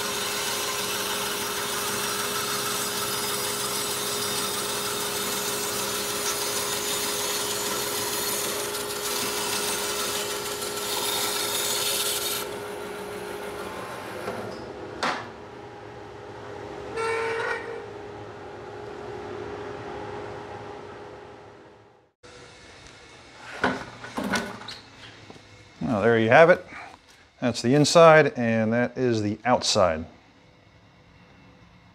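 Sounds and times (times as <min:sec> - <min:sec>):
bandsaw cutting wood: 0:00.0 - 0:14.4.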